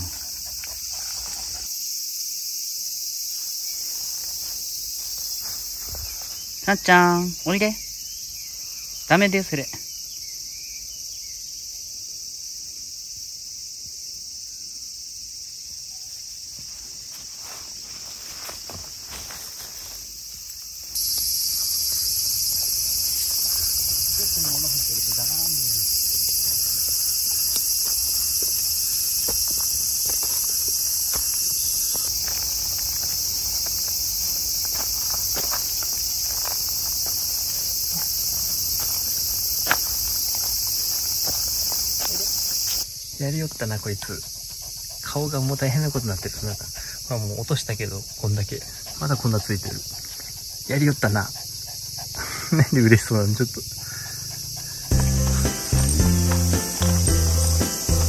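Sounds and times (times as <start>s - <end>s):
insects chirring: 0.0s - 58.0s
footsteps on leafy dirt path: 3.3s - 6.9s, 16.4s - 42.9s, 54.4s - 58.0s.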